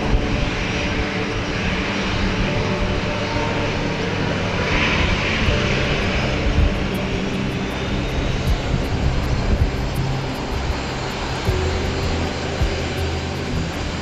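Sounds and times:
turboprop airliner engines humming: 0:00.0 - 0:14.0.

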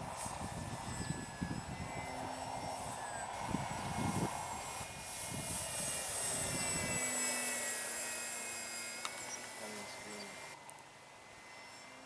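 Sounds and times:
wind buffeting microphone: 0:00.0 - 0:07.8
model plane motor whining: 0:00.0 - 0:12.0.

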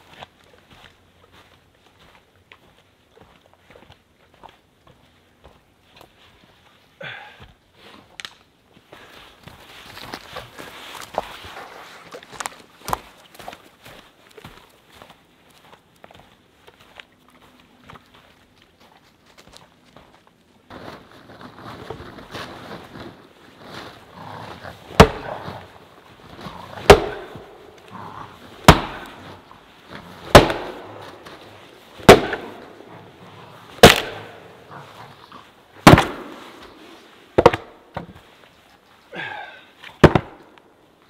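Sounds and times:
axe chopping wood: 0:24.9 - 0:25.5, 0:26.8 - 0:27.5, 0:28.6 - 0:29.3, 0:30.2 - 0:31.4, 0:32.0 - 0:32.7, 0:33.8 - 0:34.4, 0:35.8 - 0:36.4, 0:37.4 - 0:38.1, 0:40.0 - 0:40.4.

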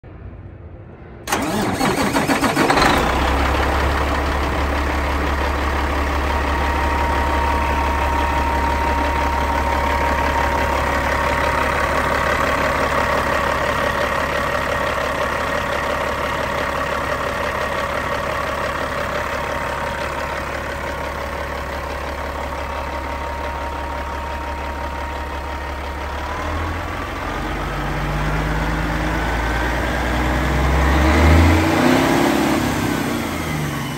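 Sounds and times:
diesel engine starter cranking: 0:01.3 - 0:26.3
diesel engine idling: 0:01.3 - 0:33.9.

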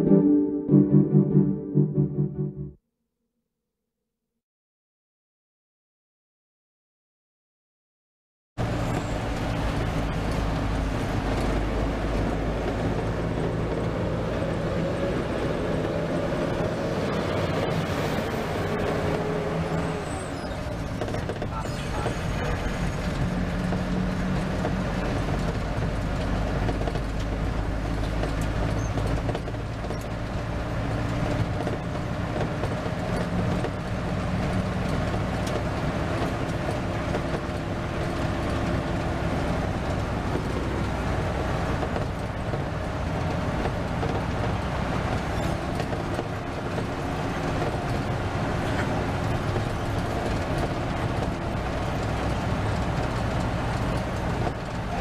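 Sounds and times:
bus engine drone: 0:00.0 - 0:02.8, 0:08.6 - 0:55.0
road noise: 0:08.6 - 0:55.0.

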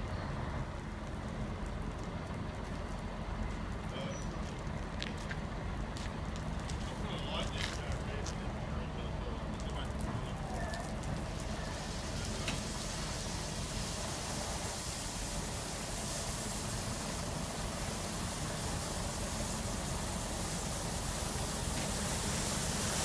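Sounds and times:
bus engine rumble: 0:00.0 - 0:23.0
water spraying hiss: 0:09.4 - 0:23.0.

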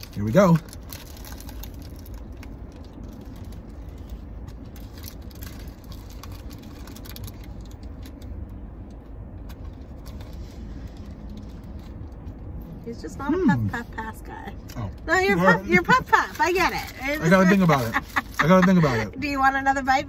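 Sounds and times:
paper wrapper crinkling: 0:00.0 - 0:08.3, 0:15.4 - 0:19.1
low rumble inside car: 0:00.0 - 0:20.0.

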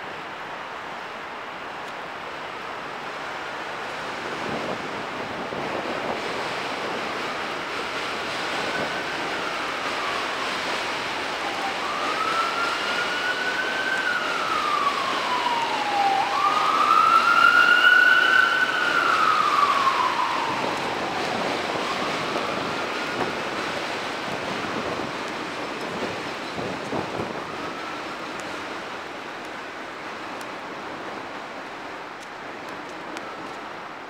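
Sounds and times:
wind noise: 0:02.9 - 0:34.0
emergency siren wailing: 0:04.3 - 0:30.0.

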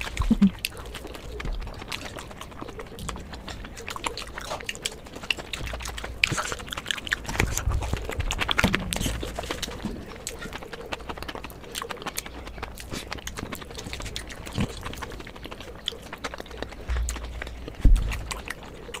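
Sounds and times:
close chewing of crunchy food: 0:00.0 - 0:19.0
wet mouth sounds: 0:00.0 - 0:19.0.

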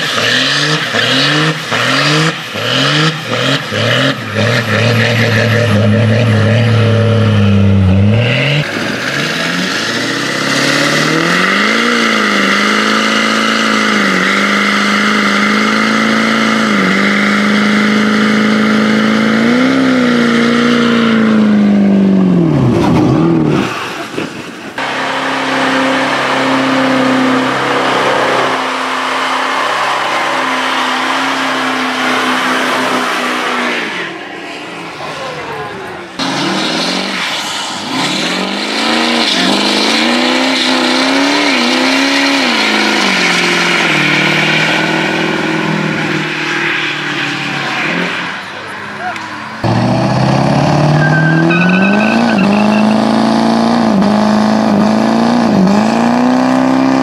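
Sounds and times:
diesel engine revving high: 0:00.0 - 0:57.0
tyres spinning and squealing: 0:23.6 - 0:53.6.

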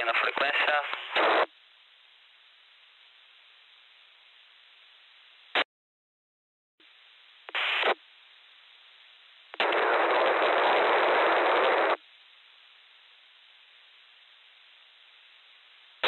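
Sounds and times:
bursts of radio static: 0:00.0 - 0:01.5, 0:07.5 - 0:08.0, 0:09.6 - 0:12.0
faint radio hiss: 0:00.0 - 0:05.6, 0:06.8 - 0:16.0
sharp crack: 0:09.6 - 0:12.0.

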